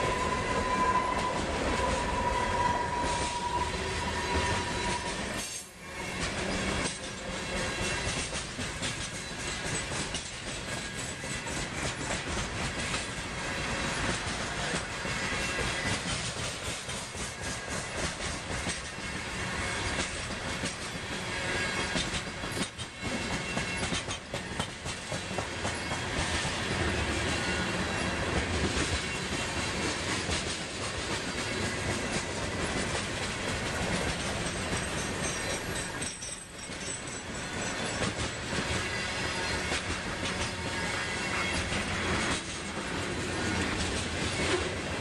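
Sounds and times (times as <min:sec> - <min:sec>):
train wheels rumbling on rail: 0:00.0 - 0:45.0
wheels clicking over rail joints: 0:06.2 - 0:13.3, 0:21.8 - 0:44.9.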